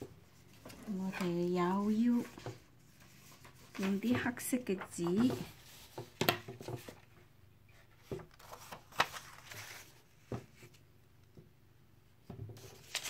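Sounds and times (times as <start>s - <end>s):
paper rustling and tapping: 0.5s - 7.0s, 8.0s - 10.8s.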